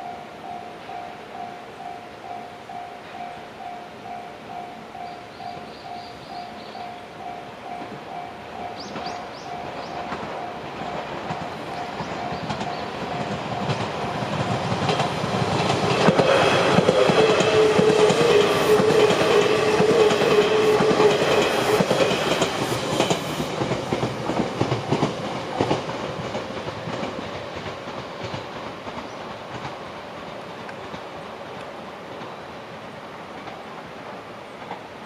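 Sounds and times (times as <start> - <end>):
level crossing warning bell: 0.0 - 14.5
train wheels clicking over rail joints: 7.7 - 32.5, 33.2 - 35.0.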